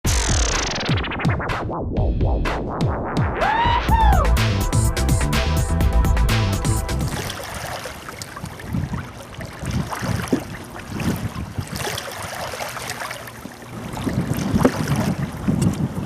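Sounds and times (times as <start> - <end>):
water lapping against canoe hull: 6.9 - 16.0.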